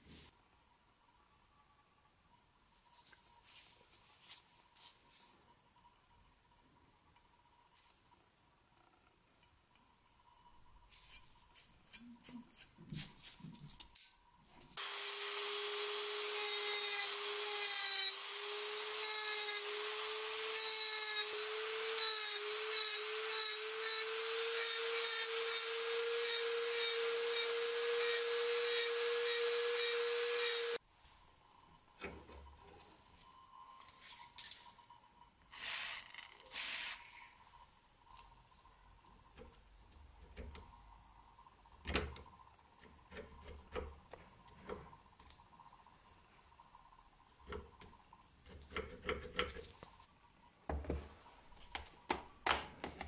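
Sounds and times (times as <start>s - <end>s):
rotary tool grinding metal: 14.8s - 30.8s.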